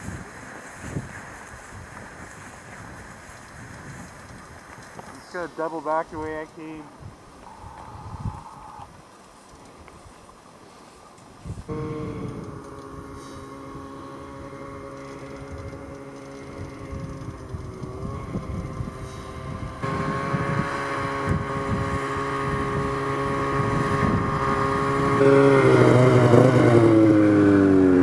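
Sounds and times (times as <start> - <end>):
snowmobile engine running: 11.7 - 28.0.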